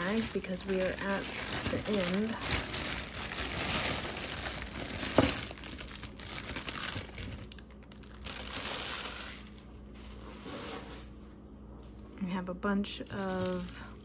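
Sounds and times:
bag rustling: 0.0s - 11.1s
metal jewelry clinking: 4.9s - 7.8s, 13.1s - 14.0s.

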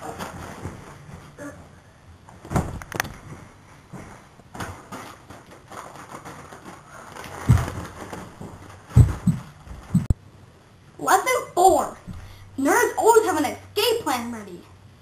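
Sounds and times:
dull thumps: 7.4s - 10.2s.

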